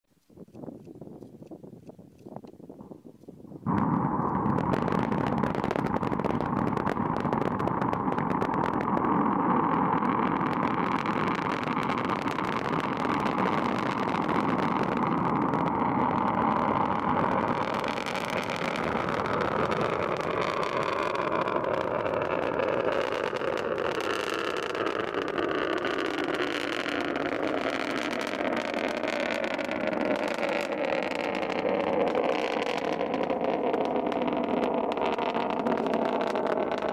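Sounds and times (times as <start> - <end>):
rocket engines roaring: 3.7 - 36.9.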